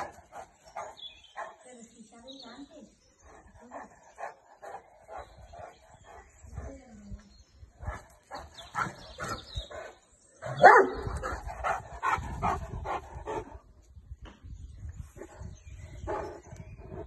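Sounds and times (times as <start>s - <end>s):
dog barking: 10.6s - 11.0s.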